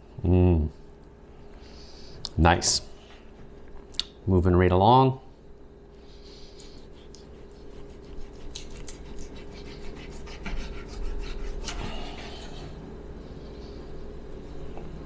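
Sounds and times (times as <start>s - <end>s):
knife sawing through meat: 6.6s - 12.8s.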